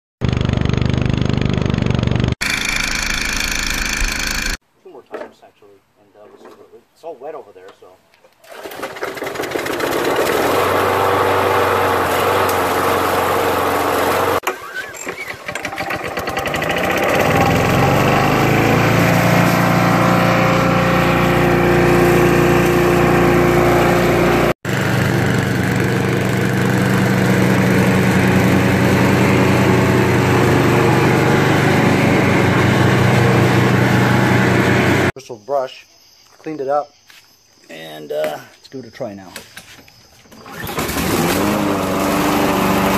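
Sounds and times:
lawn mower engine running: 0:00.2 - 0:04.6, 0:08.5 - 0:35.2, 0:40.4 - 0:42.9.

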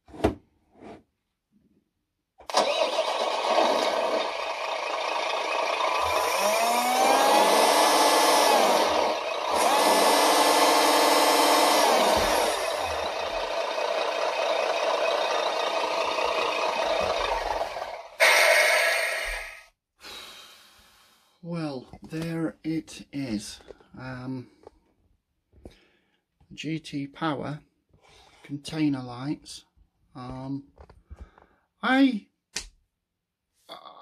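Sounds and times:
simulated truck engine from speaker: 0:02.5 - 0:10.7, 0:11.4 - 0:19.4.

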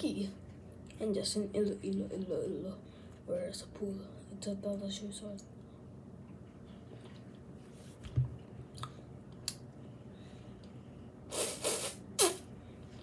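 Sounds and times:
loud slurping suck: 0:11.3 - 0:12.5.

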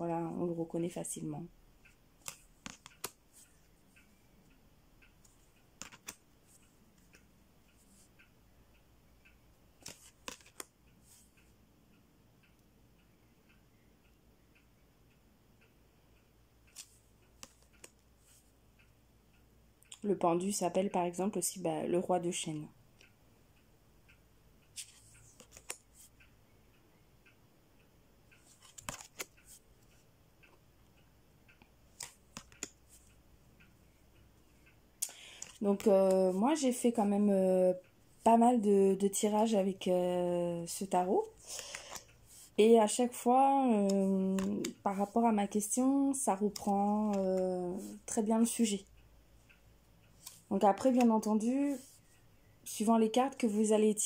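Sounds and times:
wall clock ticking faintly: 0:00.0 - 0:54.0
cards clicking as flipped by hand: 0:02.2 - 0:03.4, 0:05.8 - 0:06.2, 0:09.8 - 0:11.2, 0:16.7 - 0:18.0, 0:24.8 - 0:26.0, 0:28.4 - 0:29.6, 0:31.9 - 0:32.8, 0:35.1 - 0:35.9, 0:41.4 - 0:42.1, 0:44.4 - 0:45.1, 0:50.2 - 0:51.9.

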